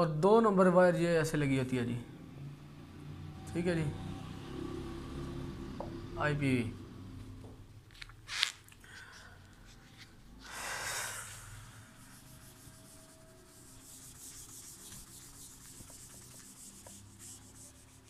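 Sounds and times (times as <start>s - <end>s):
eraser rubbing on whiteboard: 11.8s - 18.0s.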